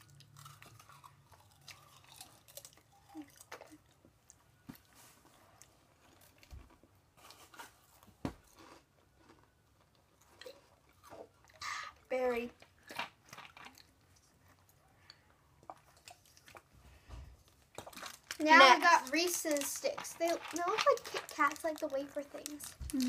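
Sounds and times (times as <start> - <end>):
chewing potato chip: 0.0 - 7.8, 8.4 - 11.7, 15.6 - 16.7, 17.4 - 23.0.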